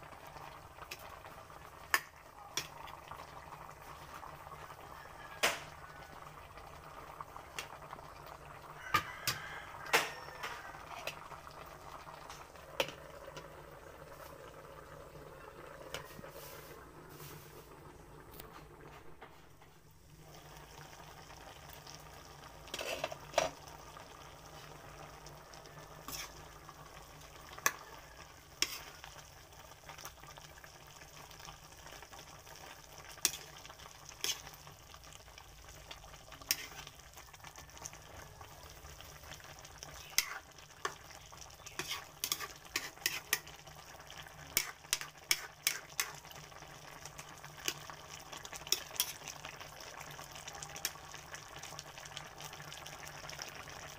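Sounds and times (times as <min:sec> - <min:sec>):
broth bubbling and sizzling: 0:00.0 - 0:53.9
sharp pops and crackles: 0:01.8 - 0:02.8, 0:44.4 - 0:46.4.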